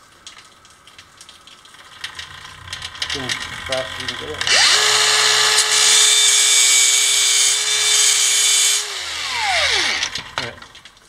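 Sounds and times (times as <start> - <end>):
angle grinder grinding steel: 2.2 - 10.9
grinder motor winding down: 2.2 - 10.9.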